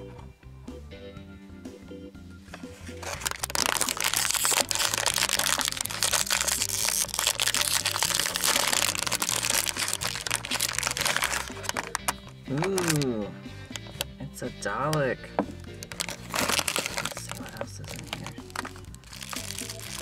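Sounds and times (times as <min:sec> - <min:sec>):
foil wrapper crinkling: 0:02.8 - 0:13.2, 0:15.7 - 0:20.0.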